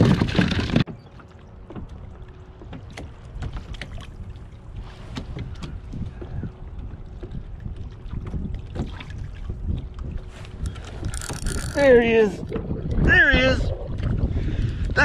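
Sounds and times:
water against hull: 0:00.0 - 0:15.0
wind rumble on microphone: 0:00.0 - 0:15.0
fishing gear clicks and knocks: 0:10.4 - 0:12.8.

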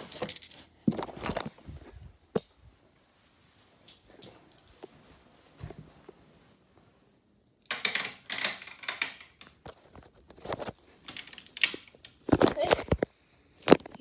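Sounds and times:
small hard objects clicking: 0:07.6 - 0:09.8, 0:10.5 - 0:13.0.

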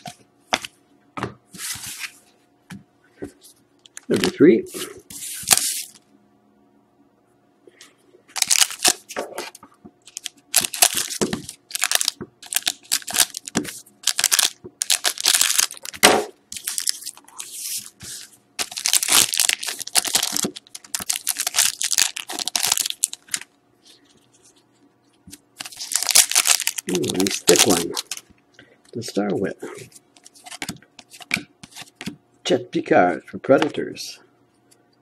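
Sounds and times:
wrapper tearing and crinkling: 0:08.4 - 0:09.1, 0:10.0 - 0:17.5, 0:18.6 - 0:23.5, 0:25.6 - 0:28.2.

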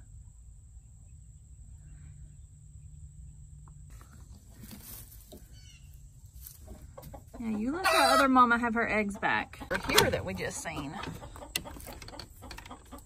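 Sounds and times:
low rumble of wind: 0:00.0 - 0:13.0
straw rustling: 0:03.9 - 0:07.0.

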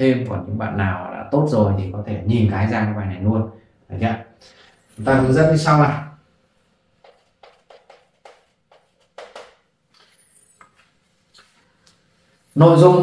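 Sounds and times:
chalk tapping and scraping: 0:07.0 - 0:11.6.

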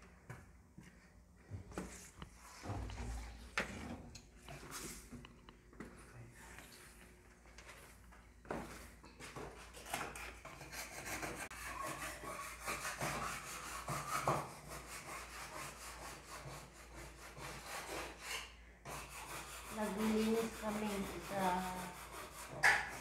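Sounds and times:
scratchy rubbing: 0:18.9 - 0:23.0.

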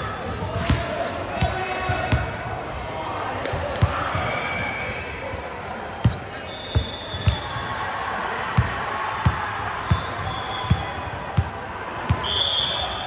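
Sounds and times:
sneaker squeaks: 0:01.9 - 0:08.7, 0:09.8 - 0:13.0
basketball bouncing: 0:06.8 - 0:07.5, 0:08.6 - 0:10.1.

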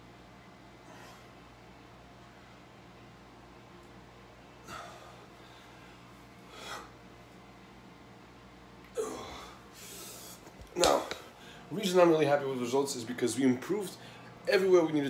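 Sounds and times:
faint low hum: 0:00.0 - 0:15.0
man breathing forcefully: 0:04.6 - 0:07.0.

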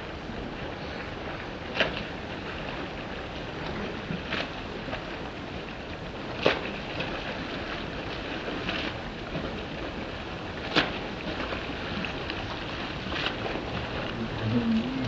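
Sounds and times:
rush of water and wind: 0:00.0 - 0:15.0
swimming stroke splashes: 0:00.6 - 0:15.0.

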